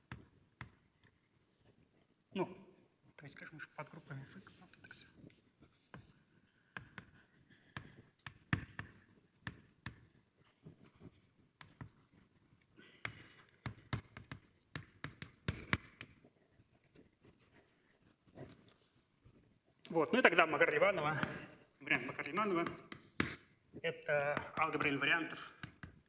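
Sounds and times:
chalk tapping on board: 0.0 - 1.2, 6.7 - 10.2, 10.8 - 12.2, 13.0 - 16.2, 22.4 - 23.5, 24.3 - 26.0
scratchy writing strokes: 0.0 - 2.2, 3.6 - 19.8, 20.6 - 26.0.

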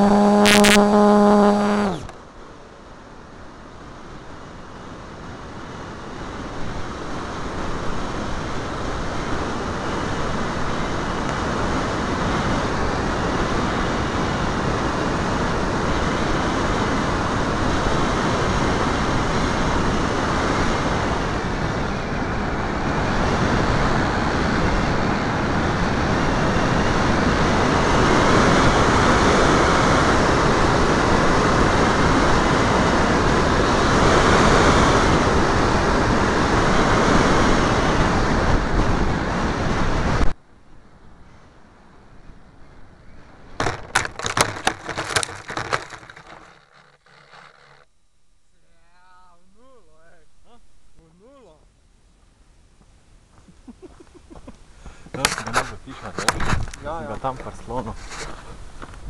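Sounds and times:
wind rushing over microphone: 5.0 - 40.4, 55.5 - 59.0.

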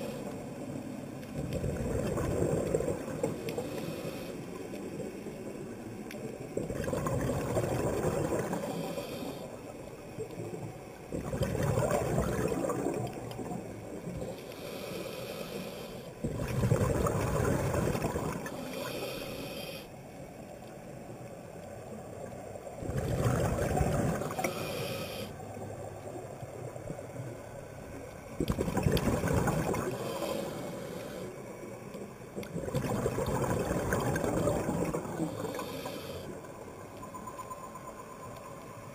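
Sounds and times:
exhaled bubbles underwater: 1.4 - 3.8, 6.6 - 9.3, 10.3 - 14.4, 16.2 - 19.0, 22.8 - 24.8, 28.4 - 31.2, 32.3 - 36.6
regulator inhalation hiss: 3.6 - 4.6, 8.6 - 9.6, 14.3 - 16.2, 18.4 - 20.0, 24.3 - 25.4, 29.9 - 31.4, 35.2 - 36.4.

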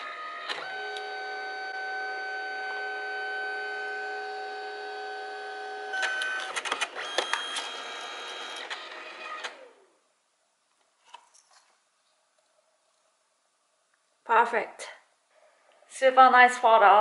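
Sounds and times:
printer motor whirring and clicking: 0.0 - 9.8.

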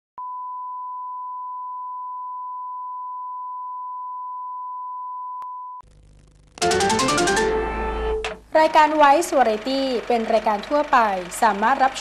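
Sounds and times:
steady test tone beep: 0.2 - 5.8.

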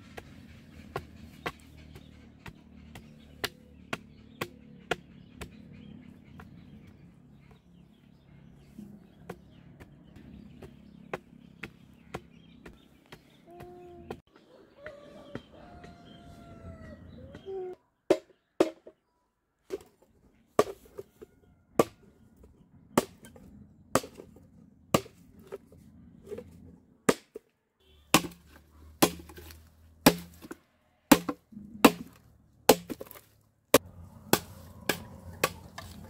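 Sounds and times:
machete chopping bamboo: 0.9 - 5.6, 23.0 - 24.3, 24.9 - 25.6, 27.1 - 27.5, 28.1 - 36.0.

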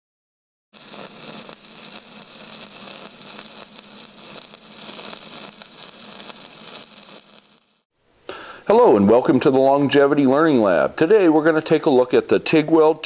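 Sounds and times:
electric welding arc crackling: 0.8 - 7.9.

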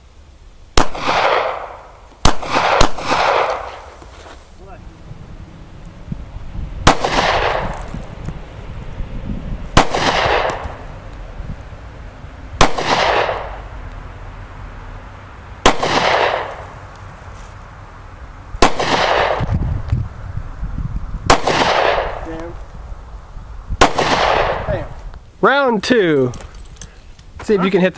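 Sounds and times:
handgun shots with echo: 0.8 - 3.7, 6.9 - 7.9, 9.8 - 10.8, 12.6 - 13.5, 15.7 - 16.6, 18.6 - 19.5, 21.3 - 22.2.

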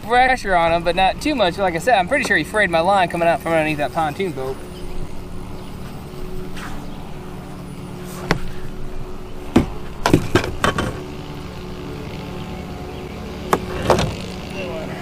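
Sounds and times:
boat motor humming: 0.0 - 15.0
sharp knocks and clatters: 9.5 - 11.1.

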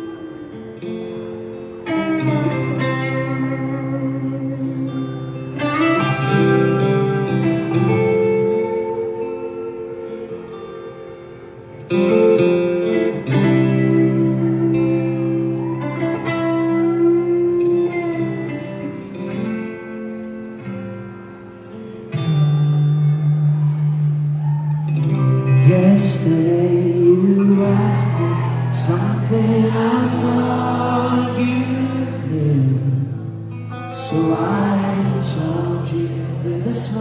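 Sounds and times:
rock band with electric guitars: 0.0 - 37.0.

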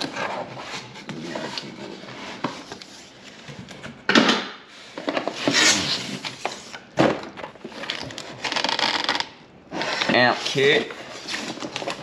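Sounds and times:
box scraping against cardboard: 5.3 - 6.7.

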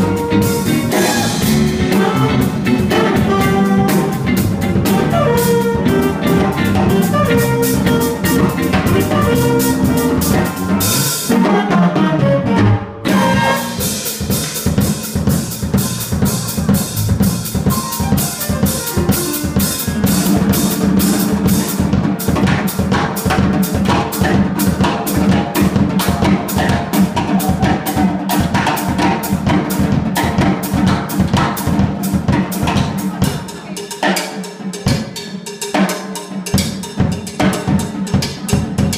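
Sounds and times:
electric keyboard: 0.0 - 14.1, 15.8 - 22.2
saxophone: 0.0 - 14.1
trumpet: 0.0 - 14.2
guitar: 0.0 - 14.3
bass: 0.0 - 33.7, 36.6 - 38.9
drum kit: 0.0 - 38.9.

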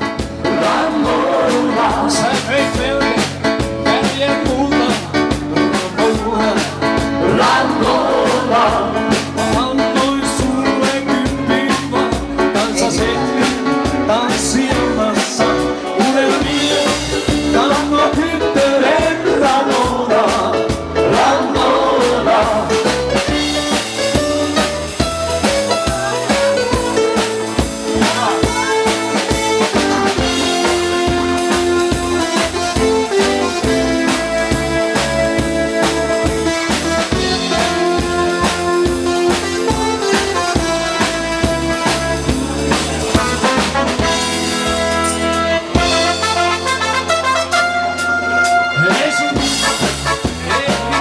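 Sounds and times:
live pop band through pa: 0.0 - 51.0
people singing: 0.3 - 3.0, 5.9 - 23.1, 28.0 - 29.4.

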